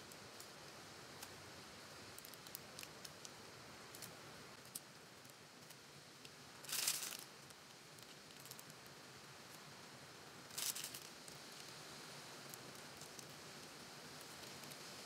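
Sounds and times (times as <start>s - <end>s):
piping bag rustling and ticking: 6.6s - 8.9s, 10.5s - 11.8s.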